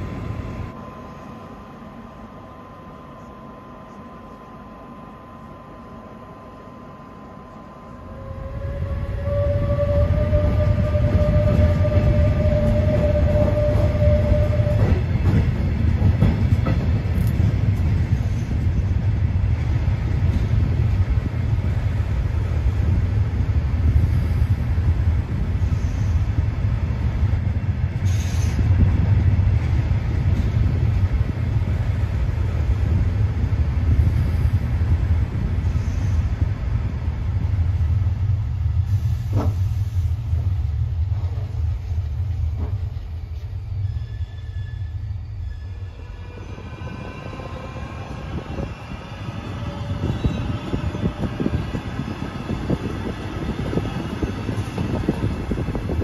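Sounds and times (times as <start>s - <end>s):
loud low train rumble: 0.0s - 56.0s
short air hiss: 28.0s - 28.7s, 38.8s - 40.2s.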